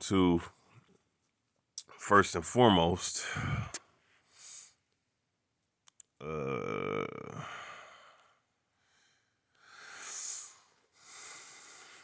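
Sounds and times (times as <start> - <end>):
man sighing: 3.2 - 3.8, 6.2 - 8.4
man breathing: 3.2 - 4.9, 7.2 - 12.0.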